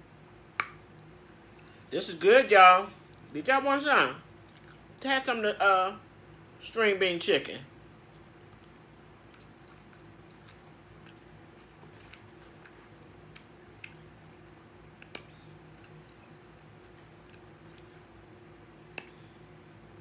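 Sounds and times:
person chewing food: 0.6s - 1.9s, 4.3s - 5.0s, 7.9s - 19.4s.

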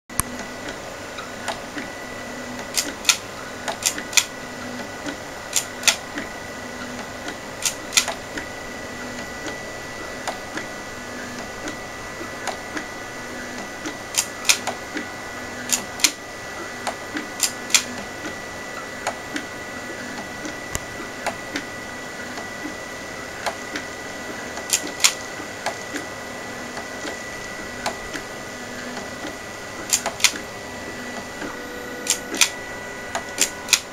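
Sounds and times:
stepper motors whining: 0.1s - 33.9s
sharp irregular clicks: 2.6s - 4.3s, 5.1s - 6.1s, 6.9s - 8.2s, 13.6s - 14.8s, 15.6s - 16.2s, 16.8s - 18.1s, 24.6s - 26.1s, 29.8s - 30.5s, 31.4s - 32.6s, 33.2s - 33.9s.

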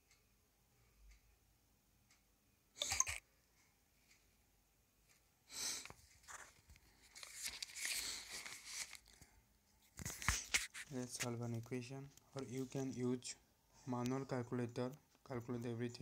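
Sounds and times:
handling rustling and scraping: 5.9s - 12.9s.

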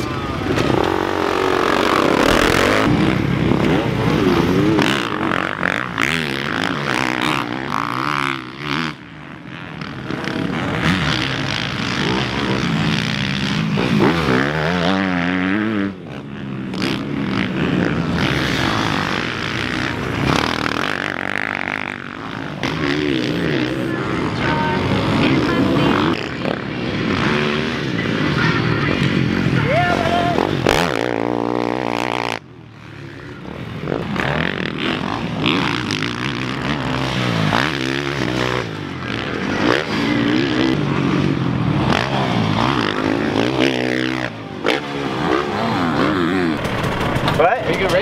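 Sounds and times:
dirt bike engines revving: 0.0s - 48.0s.

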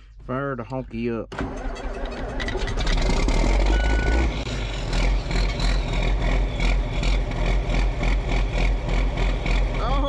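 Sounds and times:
diesel engine rumbling: 0.0s - 10.0s
short high beep: 3.7s - 4.3s.

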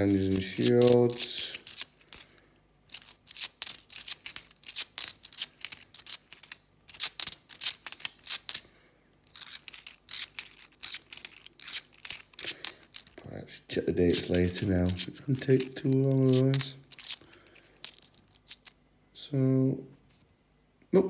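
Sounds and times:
coins clinking: 0.0s - 2.3s, 2.9s - 8.6s, 9.3s - 13.2s, 14.1s - 18.7s.

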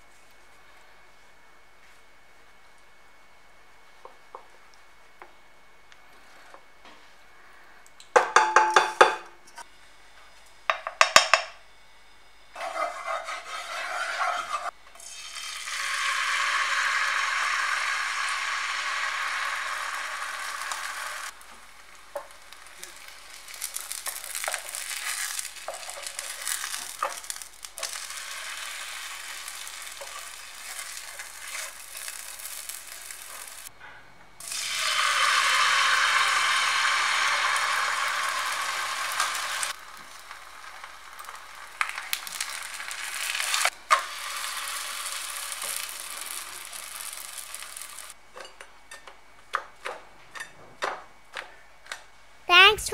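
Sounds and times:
batter sizzling in frying pan: 12.6s - 33.7s, 34.4s - 48.2s.

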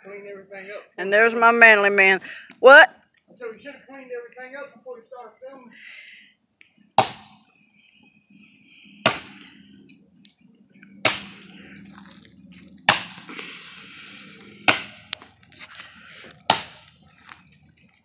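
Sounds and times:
axe chopping wood: 7.0s - 7.4s, 9.0s - 9.4s, 11.0s - 11.5s, 12.8s - 13.4s, 14.6s - 15.3s, 16.3s - 17.0s.

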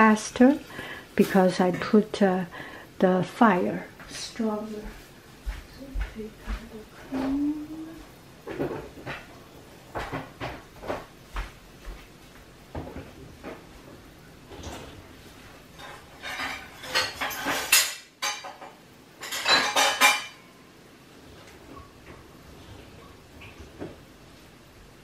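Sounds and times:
dishes and cutlery clattering: 15.8s - 20.6s.

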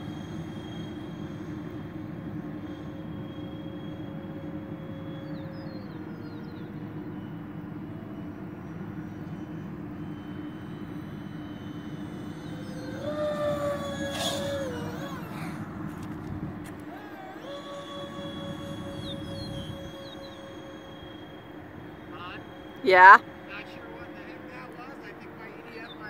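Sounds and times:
electric ducted fan whine: 0.0s - 26.0s.

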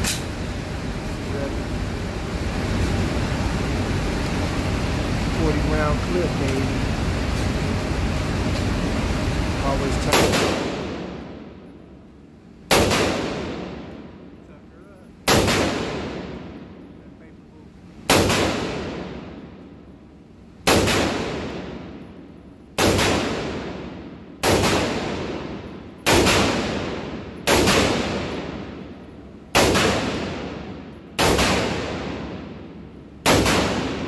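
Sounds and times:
rifle shots echoing indoors: 10.0s - 11.8s, 12.7s - 14.4s, 15.2s - 17.0s, 18.0s - 34.0s.

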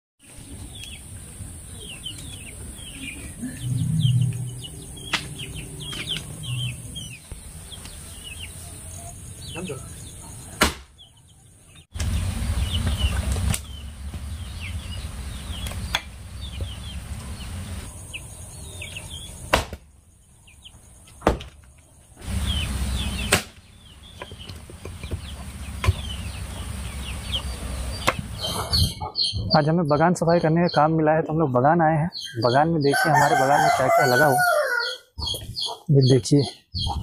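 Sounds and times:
birds chirping: 0.2s - 37.0s
axe chopping wood: 10.6s - 10.9s, 19.5s - 19.9s, 21.2s - 21.6s, 23.3s - 23.6s, 28.0s - 28.3s.

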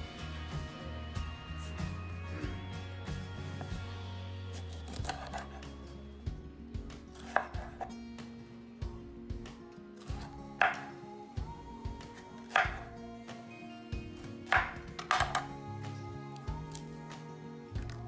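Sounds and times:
quiet background music: 0.0s - 18.0s
knife cutting on wooden board: 4.5s - 5.8s, 7.1s - 7.9s, 10.0s - 11.0s, 12.1s - 12.9s, 14.5s - 15.4s.

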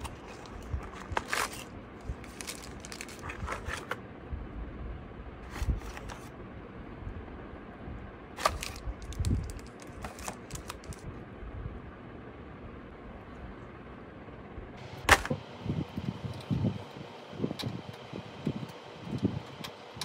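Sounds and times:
packaging rustling and crinkling: 0.0s - 4.0s, 5.5s - 6.3s, 8.4s - 11.1s.

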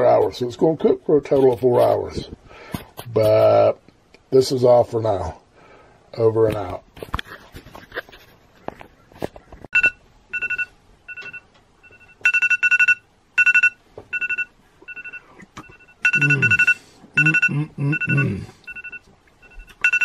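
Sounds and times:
fast high-pitched alarm beeps: 9.8s - 20.0s.

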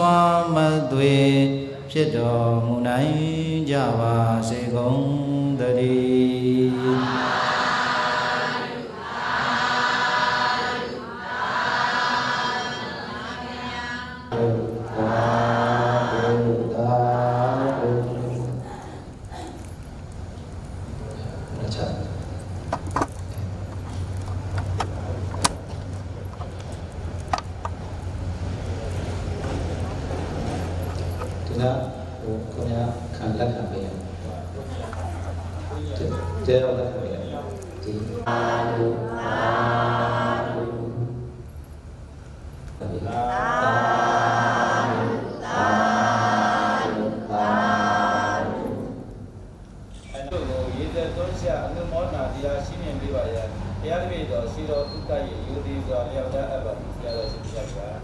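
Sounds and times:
congregation calling out together: 6.0s - 18.6s, 37.9s - 41.3s, 42.8s - 49.1s.

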